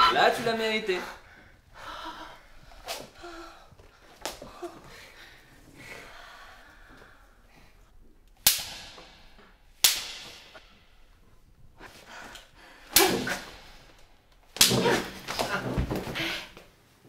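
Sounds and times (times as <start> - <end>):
riding crop whip cracks: 8.4 - 10.8, 12.9 - 14.0, 14.6 - 15.4.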